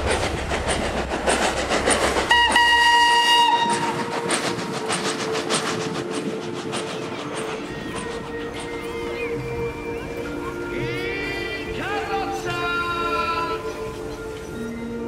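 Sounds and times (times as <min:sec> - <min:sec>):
steam locomotive chuffing: 0:00.0 - 0:15.0
steam whistle blast: 0:02.3 - 0:04.1.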